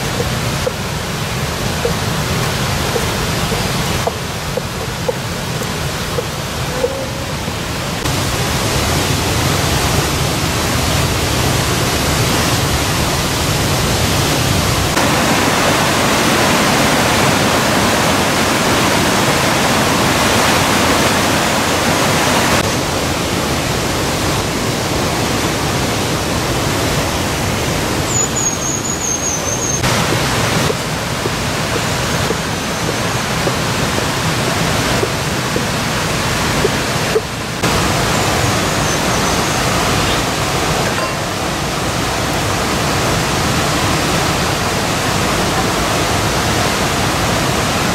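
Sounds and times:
river rapids rushing: 0:00.0 - 0:47.9
thin high whistle: 0:28.1 - 0:29.8.

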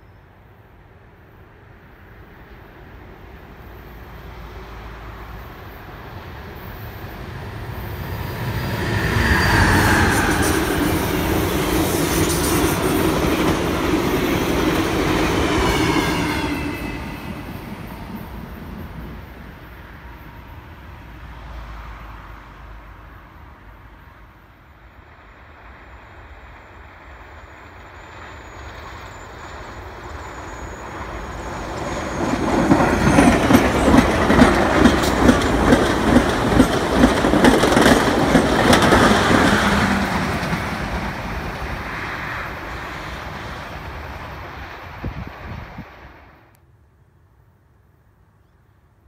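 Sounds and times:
passenger train passing: 0:00.0 - 0:46.8
wheels clacking over rail joints: 0:31.4 - 0:42.0.

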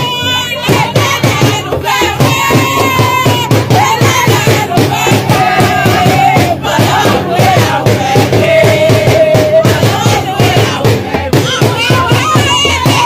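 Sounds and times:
dance music with singing: 0:00.0 - 0:13.0.

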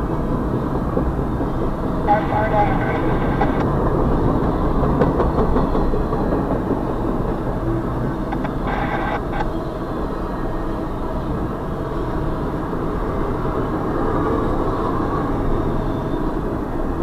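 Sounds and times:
freight train wheels on rails: 0:00.0 - 0:11.5.

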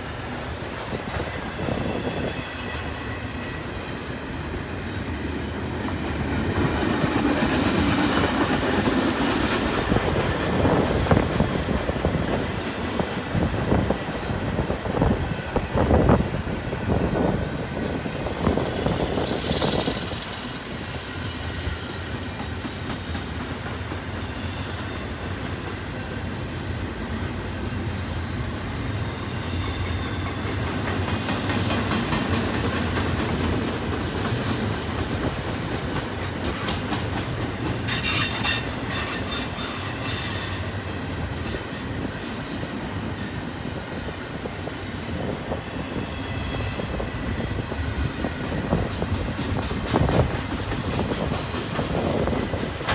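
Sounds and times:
clickety-clack over rail joints: 0:00.0 - 0:27.3, 0:29.6 - 0:52.9
freight train wheels rumbling: 0:00.0 - 0:52.9
high wheel squeal: 0:18.5 - 0:22.4, 0:37.9 - 0:40.8.

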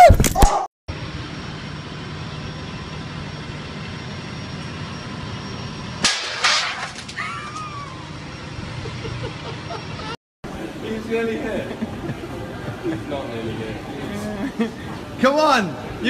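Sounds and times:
steady background hum: 0:00.9 - 0:16.0
loud sharp cracks: 0:06.0 - 0:07.2.

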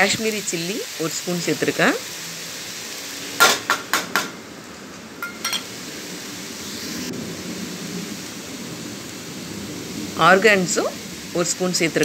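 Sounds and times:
steady hiss: 0:00.0 - 0:12.0
metal spoon tapping a pan: 0:05.2 - 0:05.7.

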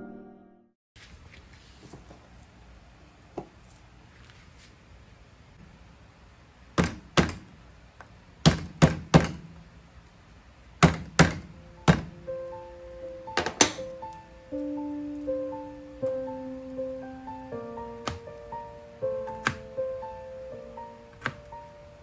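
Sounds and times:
music: 0:00.0 - 0:00.8, 0:11.6 - 0:22.0.

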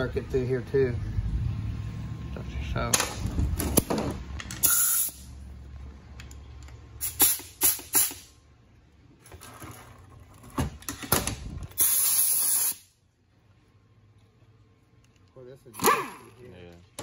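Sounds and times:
air blow gun hissing: 0:07.0 - 0:08.3, 0:11.8 - 0:12.9.

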